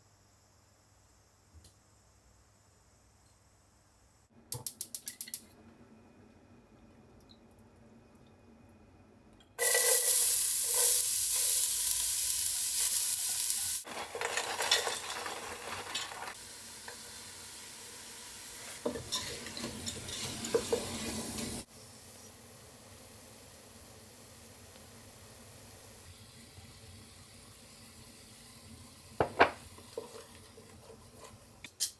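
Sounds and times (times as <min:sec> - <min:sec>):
vegetables sizzling in oil: 0:09.6 - 0:31.9
spatula scraping pot: 0:18.7 - 0:21.6.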